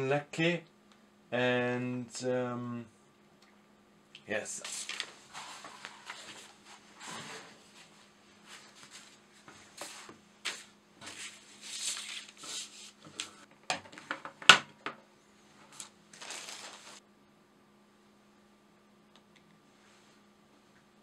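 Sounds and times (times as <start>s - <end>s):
book and paper rustling: 4.6s - 14.1s, 15.6s - 17.0s.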